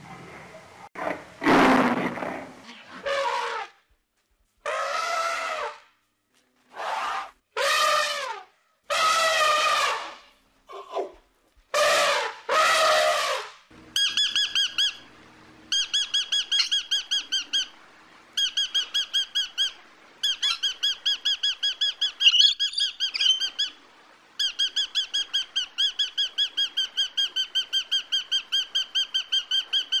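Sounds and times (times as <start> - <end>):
elephant trumpeting: 3.0 - 3.8, 4.6 - 5.8, 6.8 - 11.1, 11.8 - 13.5
parrot chattering squeaky notes: 14.0 - 15.0, 15.7 - 17.4, 22.2 - 23.6.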